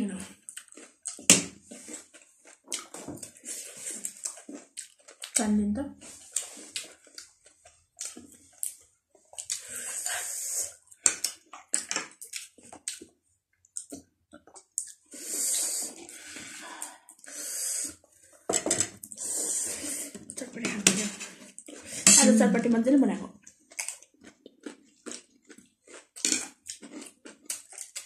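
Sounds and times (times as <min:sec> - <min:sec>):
chewing: 0:00.2 - 0:20.5, 0:21.2 - 0:22.0, 0:23.4 - 0:28.0
person slurping noodles: 0:02.8 - 0:04.6, 0:09.5 - 0:10.8, 0:15.1 - 0:18.0, 0:19.1 - 0:20.4.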